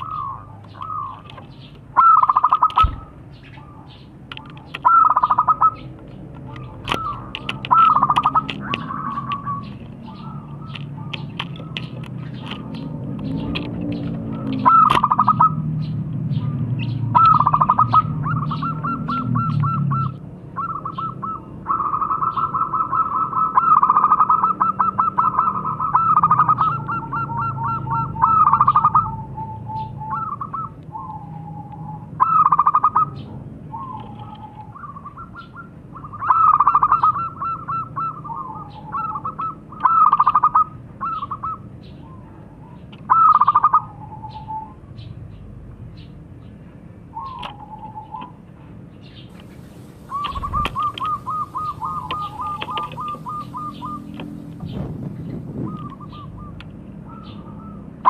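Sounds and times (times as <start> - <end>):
doves cooing in stuttering bursts: 6.5 - 15.7, 16.6 - 41.6, 49.4 - 57.8.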